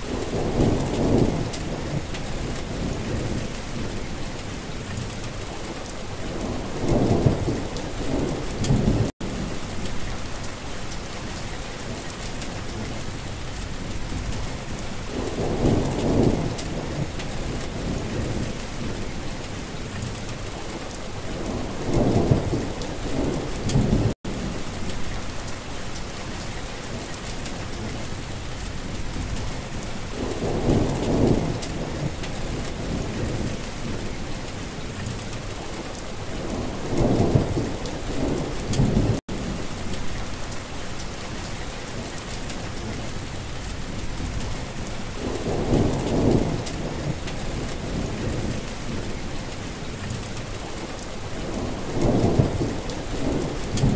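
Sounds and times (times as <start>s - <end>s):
steady rain: 0.0s - 53.9s
thunder rolling: 29.1s - 34.1s, 44.2s - 49.2s, 51.4s - 53.9s.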